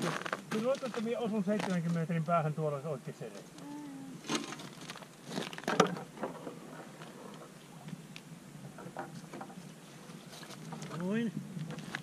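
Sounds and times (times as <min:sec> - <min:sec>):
gear crunching and knocking on ice: 0:04.3 - 0:06.0.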